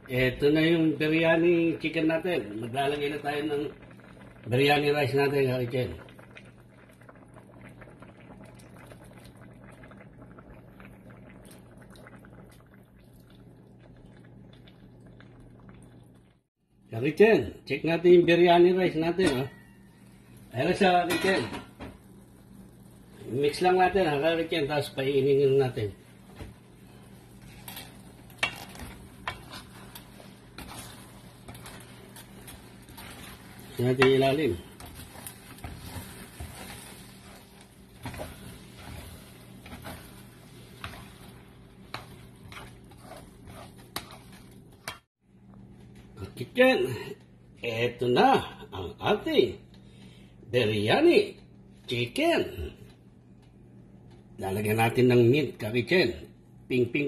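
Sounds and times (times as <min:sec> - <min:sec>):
sauce bubbling and popping: 0:03.7 - 0:04.8, 0:05.9 - 0:16.7, 0:21.7 - 0:23.2, 0:26.0 - 0:45.6
spatula scraping metal pot: 0:27.3 - 0:45.1.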